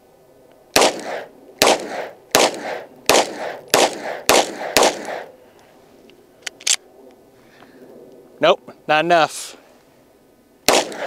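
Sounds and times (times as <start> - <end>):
pistol shots with echo: 0.7 - 5.3, 10.7 - 11.0.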